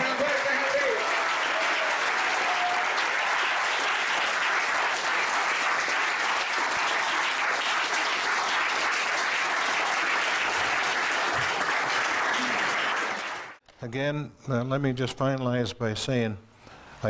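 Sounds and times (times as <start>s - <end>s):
crowd applause: 0.0s - 13.6s.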